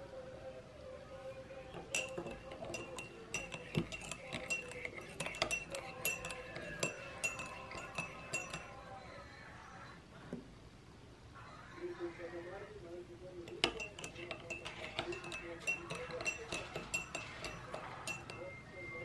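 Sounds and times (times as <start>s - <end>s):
teaspoon clinking in ceramic mug: 1.7s - 8.9s, 13.4s - 18.7s.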